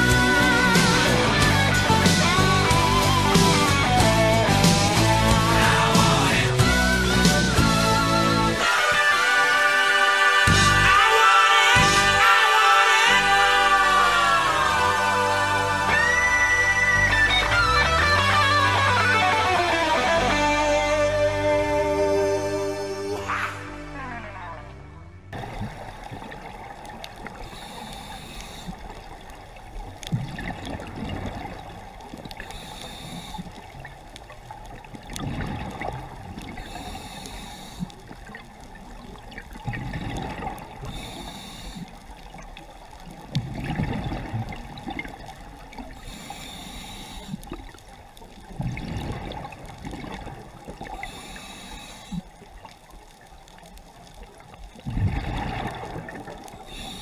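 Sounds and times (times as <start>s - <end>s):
exhaled air bubbling: 25.3s - 57.0s
regulator inhalation hiss: 27.3s - 29.1s, 32.4s - 33.9s, 36.5s - 38.2s, 40.9s - 42.2s, 46.0s - 47.6s, 50.9s - 52.4s, 56.5s - 57.0s.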